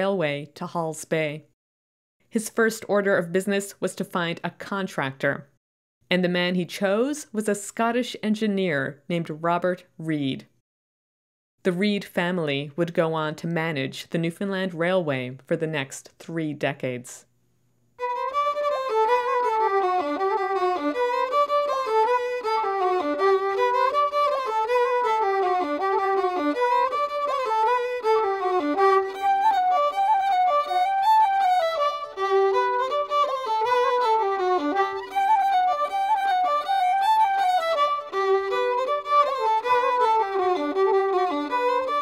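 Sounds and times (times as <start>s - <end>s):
fiddle dance tune: 18.0s - 42.0s.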